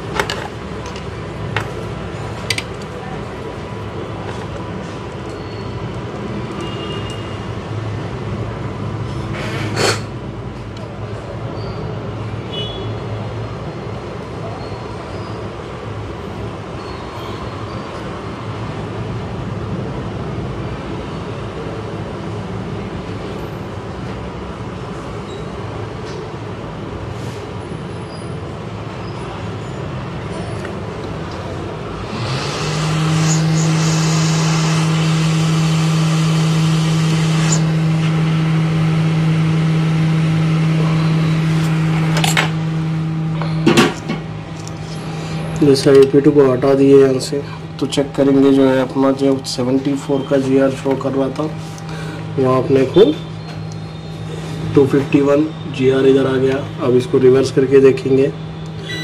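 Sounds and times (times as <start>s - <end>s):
steady hum: 30.8s - 53.4s
hot air station blowing: 31.6s - 46.0s.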